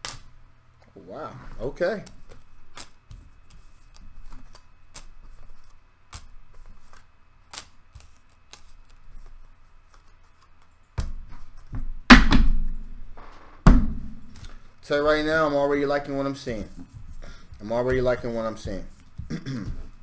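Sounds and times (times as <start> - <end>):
cards shuffling and rustling: 1.5 - 11.8, 14.3 - 20.0.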